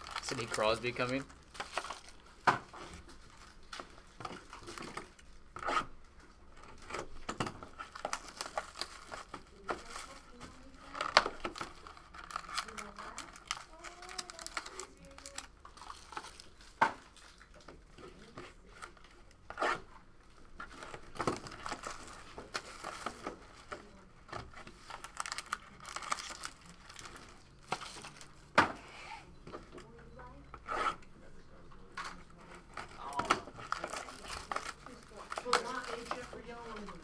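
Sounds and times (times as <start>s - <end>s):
packaging crinkling and tearing: 0.0s - 2.4s, 7.7s - 19.0s, 20.6s - 23.8s, 24.5s - 28.4s, 32.1s - 37.0s.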